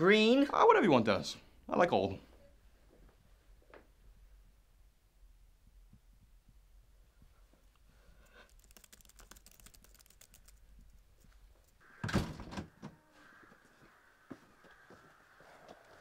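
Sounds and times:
laptop keyboard typing: 8.3 - 11.8.

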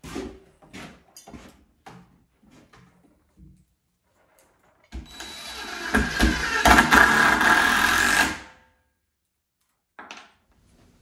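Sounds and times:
power driver driving screw: 5.0 - 8.5.

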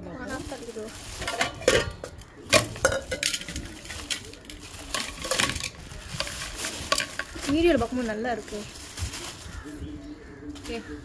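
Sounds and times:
plastic bag rustling: 0.0 - 11.0
metal pot knocking: 1.2 - 3.8.

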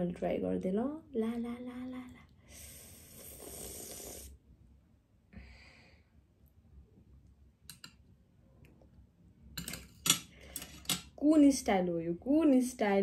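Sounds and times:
person breathing while eating: 2.2 - 4.4, 5.3 - 6.3.

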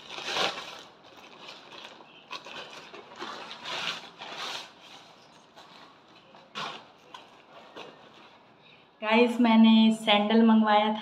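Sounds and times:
plastic mailer bag crinkling: 0.0 - 8.5.

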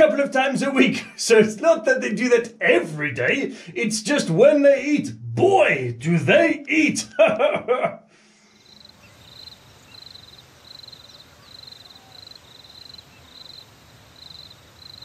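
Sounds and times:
faint low background noise: 0.0 - 15.0
insect chirping: 8.4 - 15.0.

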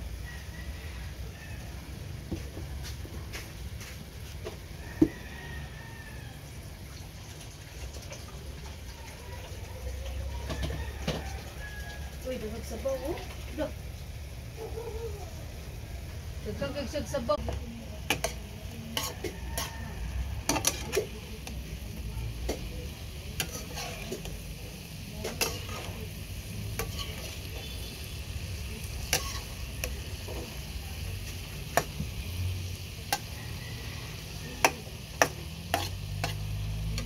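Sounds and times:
food sizzling in frying pan: 0.0 - 37.0
metal clicking on pan: 17.4 - 21.6, 23.4 - 24.4, 25.2 - 26.0, 28.9 - 30.4, 31.3 - 32.0, 33.0 - 33.4, 34.6 - 37.0
metal turner scraping pan: 17.4 - 37.0.

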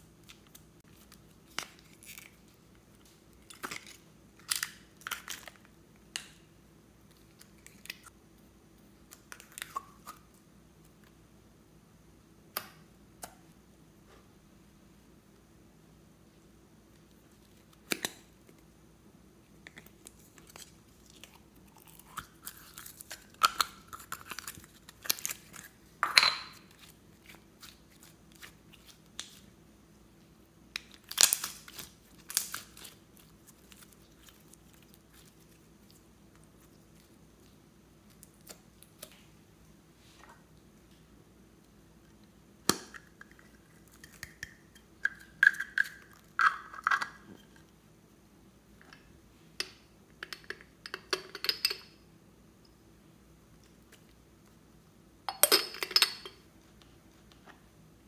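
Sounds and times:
slime squelching and crackling: 30.8 - 39.3.

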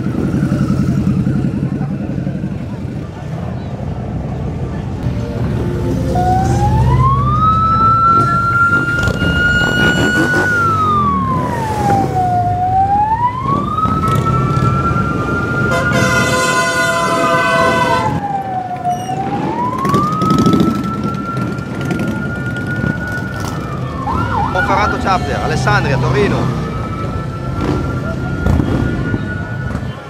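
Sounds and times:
motorcycle engines rumbling: 0.0 - 30.0
siren wailing: 5.3 - 30.0
horn blasting: 7.8 - 10.9, 15.6 - 18.2.

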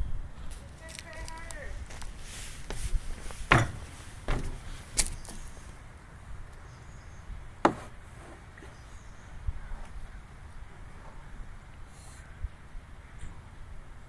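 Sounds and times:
footsteps on wood-chip mulch: 0.4 - 5.7.

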